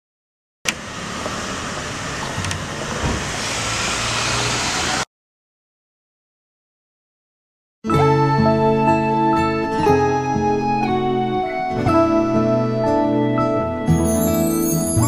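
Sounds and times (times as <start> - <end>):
rushing ambient noise: 0.8 - 5.1.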